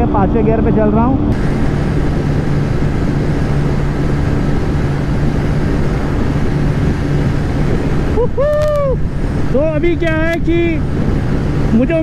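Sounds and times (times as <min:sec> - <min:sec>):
motorcycle engine at high revs: 0:00.0 - 0:08.4
road noise: 0:00.0 - 0:12.0
rushing wind: 0:00.0 - 0:12.0.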